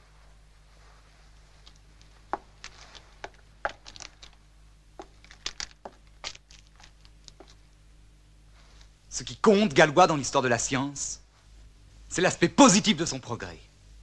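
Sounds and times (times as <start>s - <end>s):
low steady hum: 0.0s - 14.0s
clicks and crackles: 1.6s - 4.4s, 5.0s - 7.7s.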